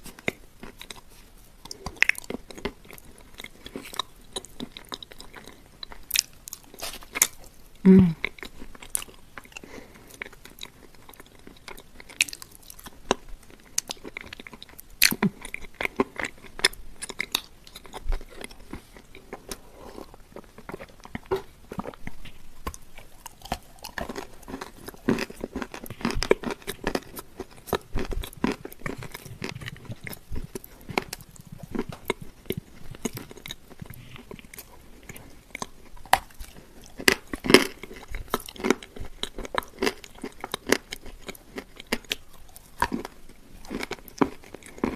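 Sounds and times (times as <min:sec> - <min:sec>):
chewing and crunching cookie: 0:00.0 - 0:44.9.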